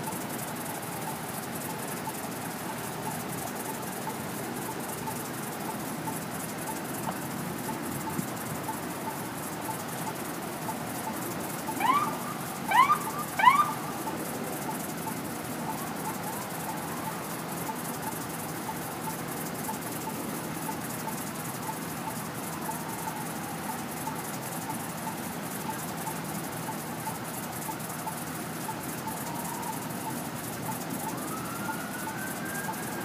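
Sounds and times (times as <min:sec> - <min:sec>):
passing traffic: 0:00.0 - 0:33.0
police siren whoops: 0:11.5 - 0:20.2, 0:28.1 - 0:33.0.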